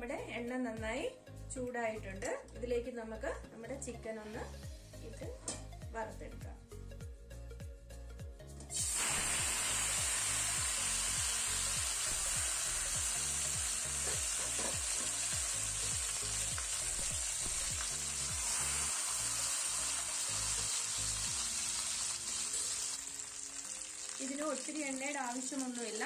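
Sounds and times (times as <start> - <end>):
hot oil sizzling: 8.7 - 26.0.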